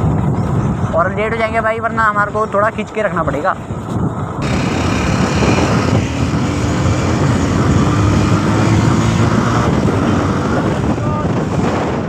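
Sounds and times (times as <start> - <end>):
wind rushing: 0.0 - 12.0
motorcycle engine running: 4.4 - 11.5.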